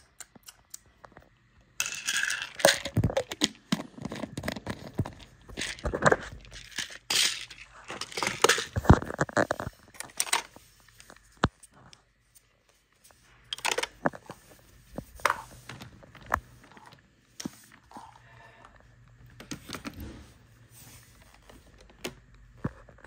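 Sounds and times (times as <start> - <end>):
plastic toys clicking and knocking: 1.8 - 11.5, 13.5 - 14.4.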